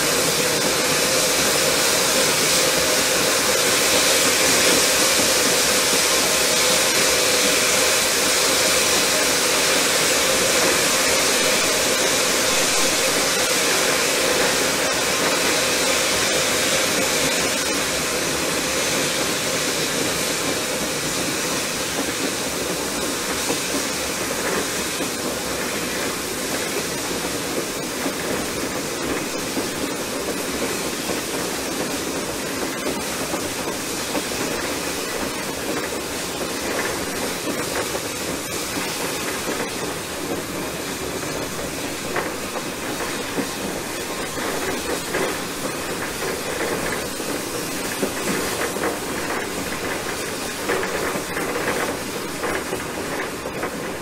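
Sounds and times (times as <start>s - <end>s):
rush of moving locomotive: 0.0s - 54.0s
steam hissing: 0.0s - 54.0s.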